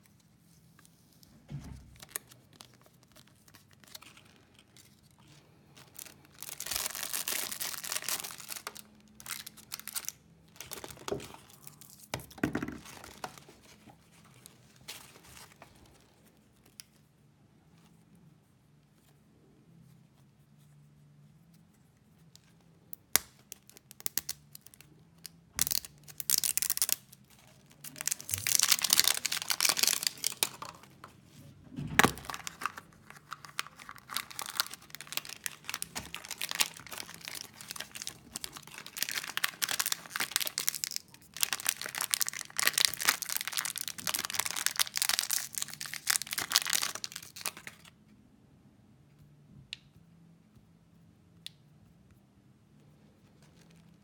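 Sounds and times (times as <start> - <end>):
foil wrapper crinkling and tearing: 2.0 - 12.1, 23.1 - 31.0, 32.0 - 47.9.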